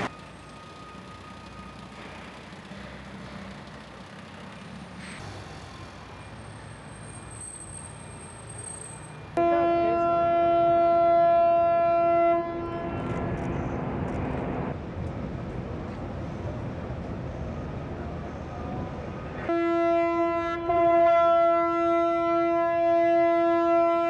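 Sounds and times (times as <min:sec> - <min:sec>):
ship horn blast: 0:09.4 - 0:14.1, 0:19.4 - 0:24.0.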